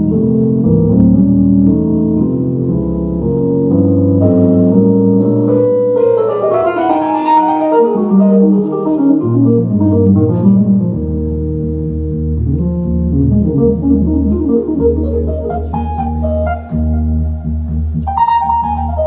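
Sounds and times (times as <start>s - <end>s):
solo electric organ: 0.0s - 19.0s.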